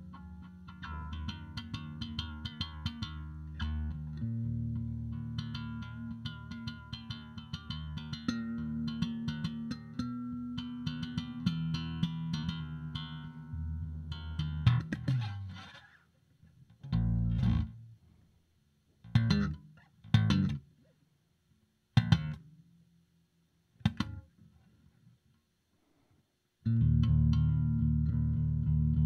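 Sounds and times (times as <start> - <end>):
electric bass guitar: 0.0 - 15.9, 16.8 - 18.0, 19.0 - 20.7, 22.0 - 22.6, 23.8 - 24.3, 26.6 - 29.0.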